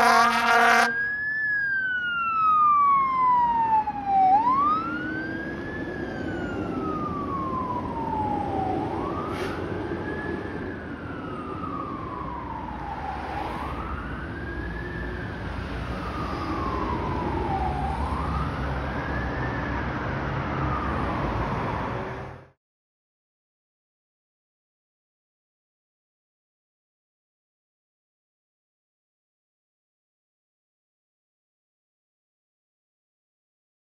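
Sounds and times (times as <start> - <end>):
fire truck siren wailing: 0.0 - 22.4
low engine and road rumble: 0.0 - 22.6.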